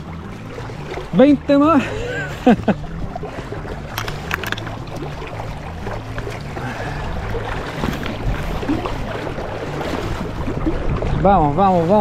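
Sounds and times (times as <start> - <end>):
river water rushing: 0.0 - 12.0
wind buffeting microphone: 2.8 - 12.0.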